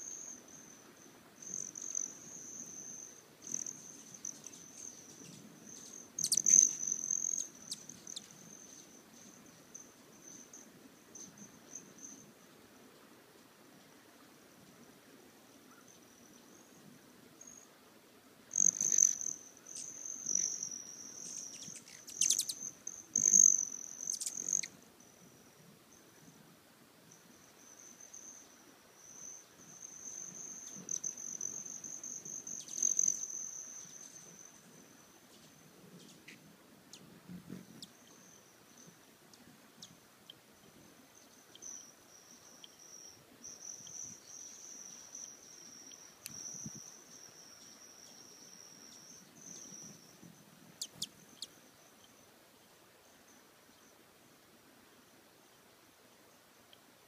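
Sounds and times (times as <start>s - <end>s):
hummingbird wing trill: 0.0s - 10.6s, 18.5s - 24.8s, 27.7s - 34.7s.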